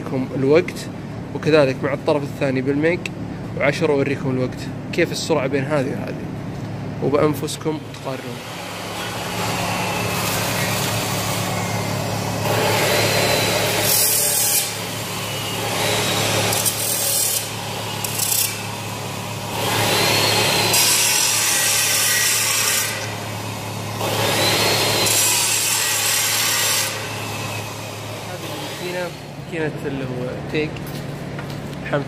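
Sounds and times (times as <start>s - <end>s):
steady hum: 0.0s - 20.7s.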